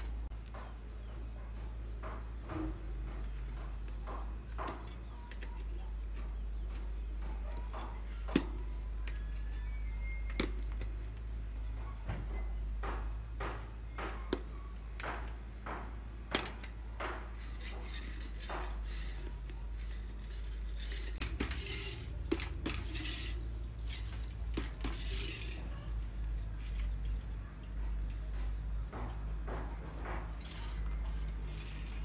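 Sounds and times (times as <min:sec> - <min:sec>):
tools knocking against hub: 0:00.3 - 0:11.0, 0:11.8 - 0:32.0
tyre scraping against rim: 0:13.6 - 0:27.8, 0:29.7 - 0:32.0.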